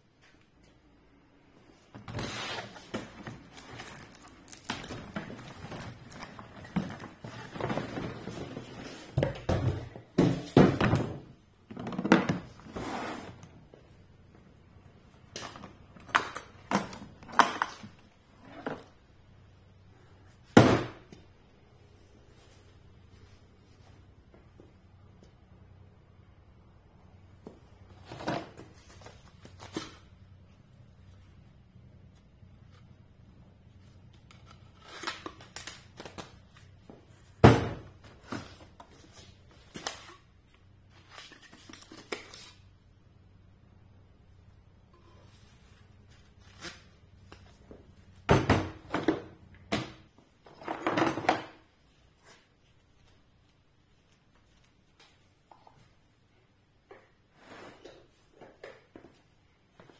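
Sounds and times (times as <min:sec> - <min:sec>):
rustling and scraping in plastic case: 0:02.0 - 0:09.8.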